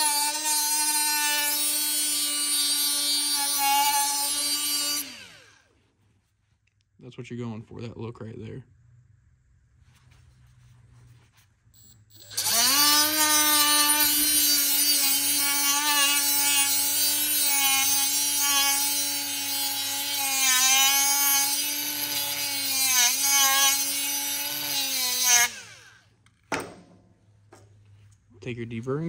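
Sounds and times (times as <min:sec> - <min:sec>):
angle grinder grinding metal: 0:00.0 - 0:05.6, 0:12.1 - 0:26.0.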